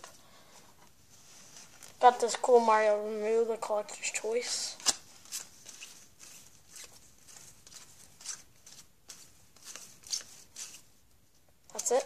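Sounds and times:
trading cards flipping and sliding: 4.8 - 10.9.

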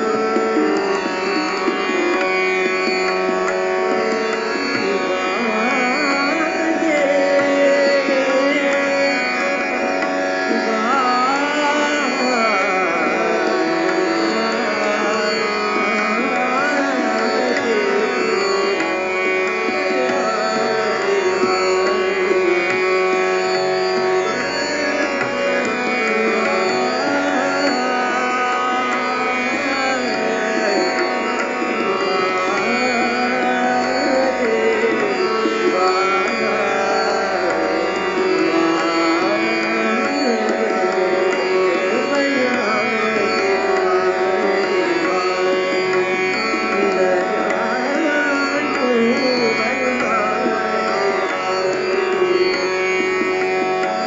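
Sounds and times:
man singing ornamented phrases: 4.8 - 19.0, 25.7 - 31.4, 32.0 - 52.8.

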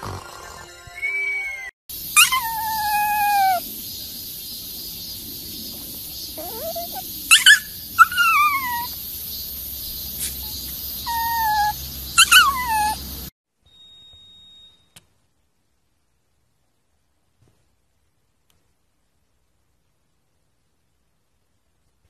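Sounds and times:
dog howling: 2.2 - 3.7, 6.4 - 9.0, 11.0 - 13.1.

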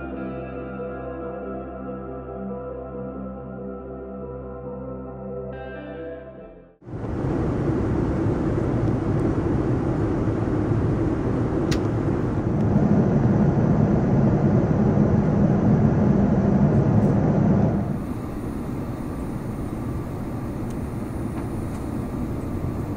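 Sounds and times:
airplane cabin rumble and hiss: 6.8 - 22.9
faint click: 20.6 - 22.0.

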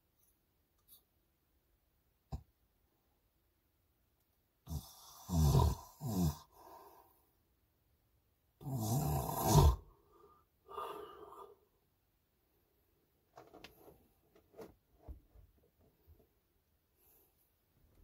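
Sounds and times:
man snoring: 4.6 - 6.8, 8.6 - 9.9
soft breath: 9.9 - 11.8.

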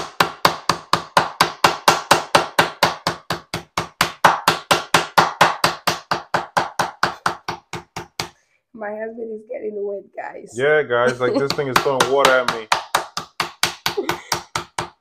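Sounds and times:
wooden spoon pounding meat: 0.0 - 8.4, 11.4 - 15.0.

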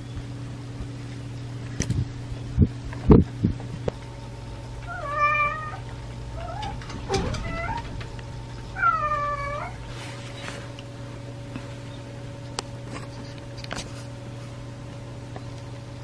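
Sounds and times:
steady low hum: 0.0 - 16.0
kitten meowing: 4.9 - 5.8, 8.8 - 9.8.

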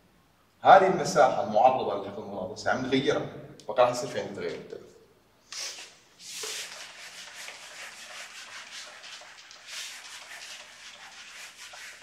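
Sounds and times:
eraser wiping whiteboard: 5.5 - 12.0.

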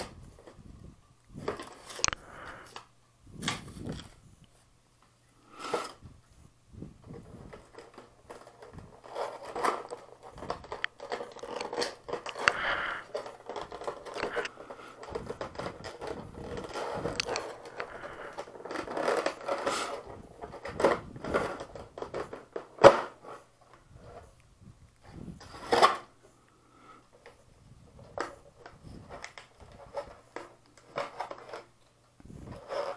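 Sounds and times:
plastic snapping: 1.5 - 4.2, 7.5 - 23.2
plastic packaging crackling: 7.0 - 23.8.

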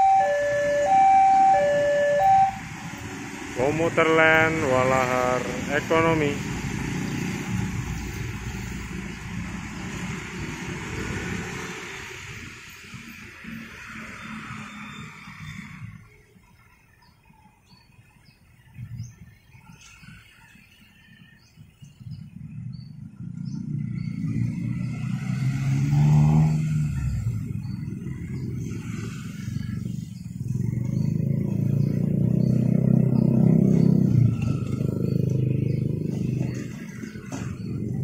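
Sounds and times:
motorcycles and scooters passing: 0.0 - 16.1, 21.8 - 38.0
bird chirping: 26.4 - 38.0.

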